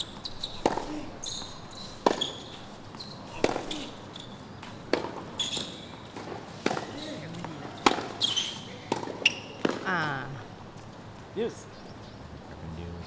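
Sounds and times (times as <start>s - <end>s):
tennis racket hitting ball: 0.6s - 1.0s, 1.8s - 2.6s, 3.3s - 4.0s, 4.9s - 9.9s.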